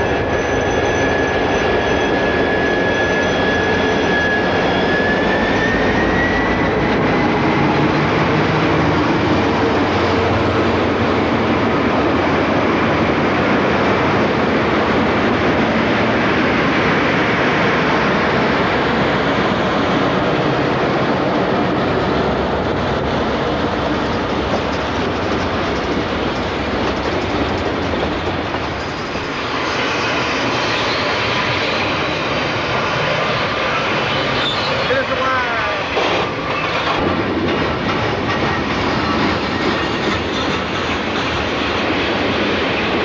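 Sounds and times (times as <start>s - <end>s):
diesel locomotive engines: 0.0s - 43.0s
train wheels clattering: 22.8s - 32.1s, 35.9s - 43.0s.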